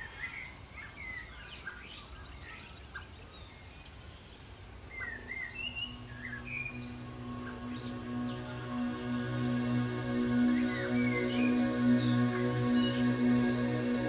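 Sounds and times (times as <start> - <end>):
birds chirping: 0.0 - 14.0
low music drone: 5.0 - 14.0.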